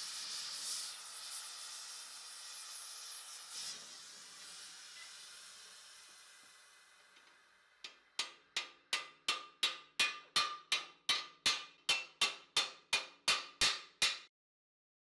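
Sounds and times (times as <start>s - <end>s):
hammer striking metal on anvil: 7.8s - 14.3s.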